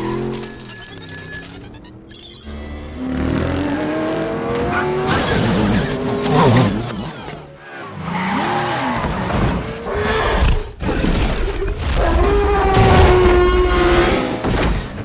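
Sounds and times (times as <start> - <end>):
car and motorcycle engines racing: 2.6 - 10.8, 12.1 - 15.0.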